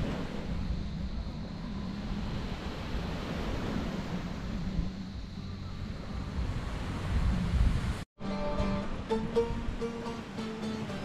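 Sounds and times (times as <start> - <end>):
wind rumbling on microphone: 0.0 - 8.1
sea surf: 0.0 - 11.0.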